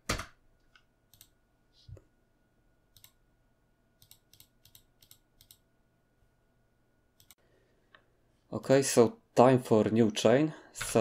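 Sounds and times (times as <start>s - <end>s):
keyboard and mouse clicks: 0.0s - 1.4s, 2.9s - 3.2s, 4.0s - 5.6s, 7.2s - 7.4s.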